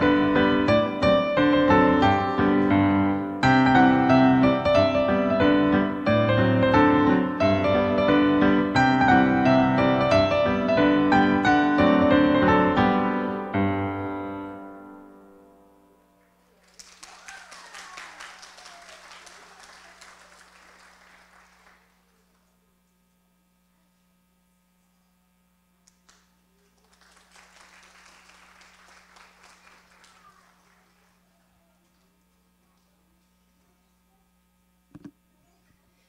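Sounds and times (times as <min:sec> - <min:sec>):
piano music: 0:00.0 - 0:16.2
audience applauding: 0:16.5 - 0:22.1, 0:26.1 - 0:32.9.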